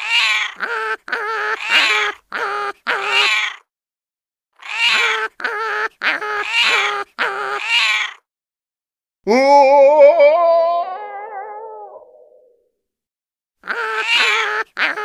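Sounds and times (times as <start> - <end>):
high wavering animal calls: 4.6 - 8.2, 9.3 - 12.6.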